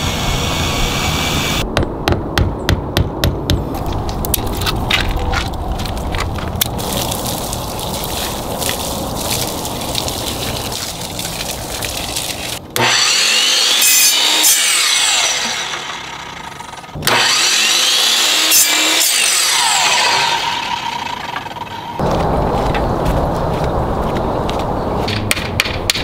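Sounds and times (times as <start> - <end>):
miter saw cutting wood: 0.0 - 1.6, 12.3 - 22.0
garden hose spraying water: 6.6 - 12.6.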